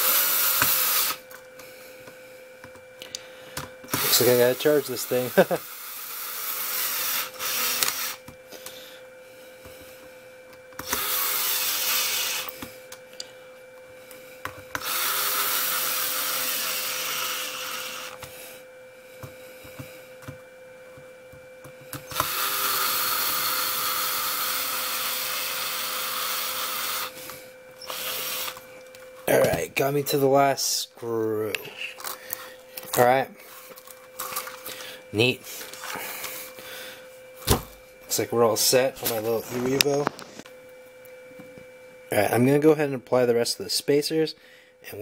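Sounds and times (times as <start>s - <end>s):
power screwdriver driving screws: 0.0s - 1.2s, 3.9s - 8.2s, 10.8s - 12.6s, 14.7s - 18.2s, 22.0s - 27.2s, 27.8s - 28.6s.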